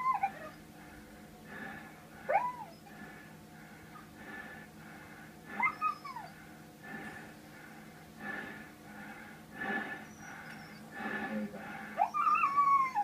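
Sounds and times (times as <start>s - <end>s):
dog whining: 0.0s - 0.7s, 2.3s - 2.9s, 5.5s - 6.4s, 10.1s - 10.9s, 12.0s - 13.0s
steady background hum: 0.0s - 13.0s.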